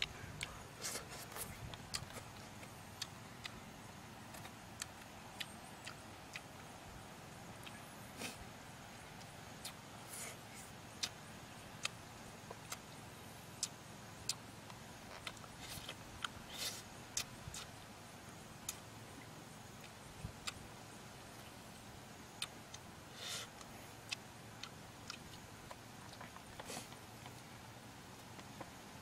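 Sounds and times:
low steady hiss: 0:00.0 - 0:29.0
lip smacks and clicks: 0:00.4 - 0:03.6, 0:04.3 - 0:06.7, 0:11.0 - 0:11.2, 0:13.6 - 0:17.7
smacking chews: 0:00.4 - 0:03.6, 0:04.3 - 0:06.7, 0:11.8 - 0:12.8, 0:13.6 - 0:17.8, 0:18.7 - 0:20.6, 0:22.4 - 0:22.8, 0:23.4 - 0:27.4.

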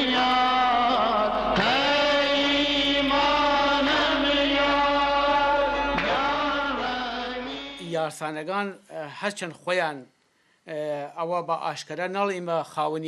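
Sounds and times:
steady held drone: 0:00.0 - 0:07.9
chant-like singing voice: 0:00.0 - 0:08.0.

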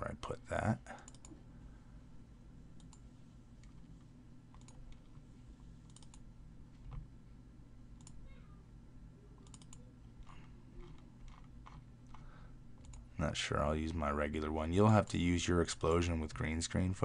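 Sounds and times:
low electrical hum: 0:00.0 - 0:17.0
computer mouse clicking: 0:01.0 - 0:01.4, 0:02.8 - 0:05.2, 0:05.8 - 0:07.1, 0:08.0 - 0:08.2, 0:09.4 - 0:13.0.

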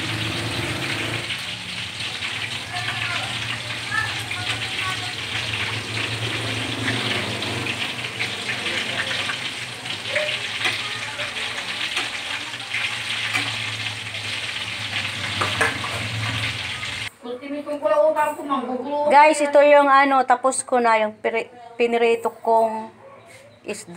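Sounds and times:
oil sizzling and crackling: 0:00.0 - 0:17.1.

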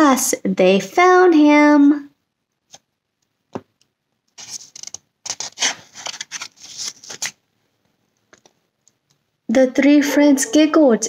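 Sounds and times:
book pages rustling and turning: 0:04.3 - 0:07.4.

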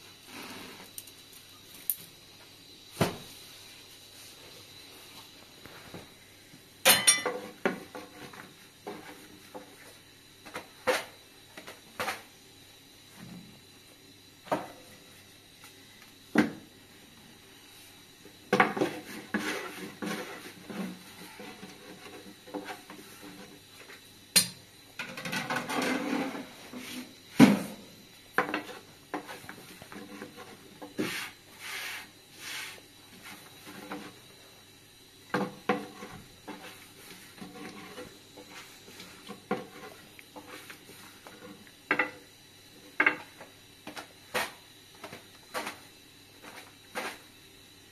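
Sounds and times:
pots and utensils clinking: 0:06.9 - 0:07.9.

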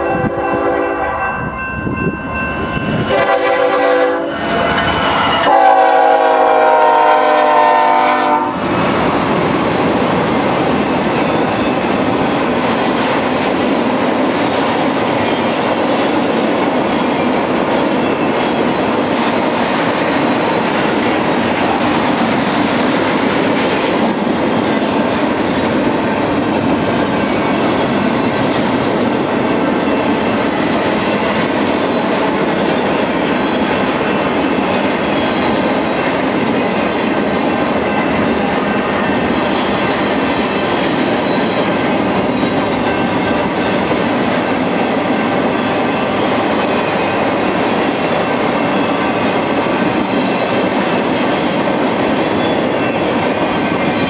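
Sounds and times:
locomotive horn blasts: 0:00.0 - 0:01.4, 0:03.0 - 0:08.6
train cars clattering on rails: 0:01.8 - 0:54.0.

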